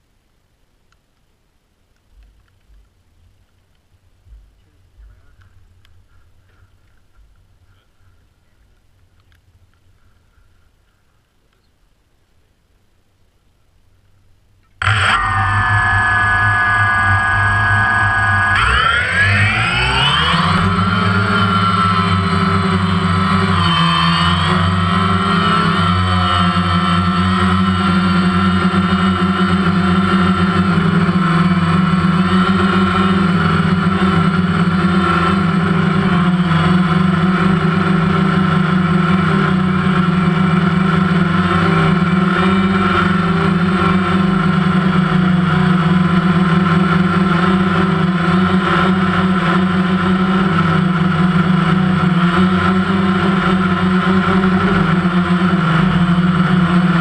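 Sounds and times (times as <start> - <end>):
drone propellers humming: 14.7 - 57.0.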